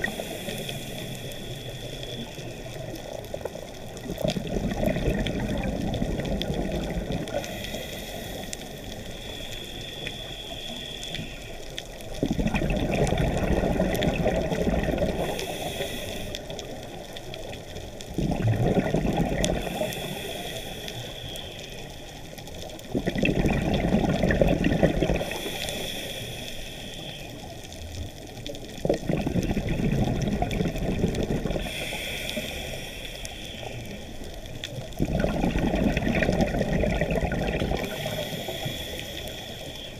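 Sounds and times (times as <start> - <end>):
regulator inhalation hiss: 0.0 - 3.3, 7.3 - 12.0, 15.0 - 17.1, 19.6 - 22.7, 25.2 - 27.7, 31.6 - 34.5, 37.8 - 39.9
exhaled bubbles rushing: 4.0 - 7.5, 12.2 - 15.3, 18.1 - 19.7, 22.9 - 25.4, 28.8 - 31.8, 34.9 - 38.1.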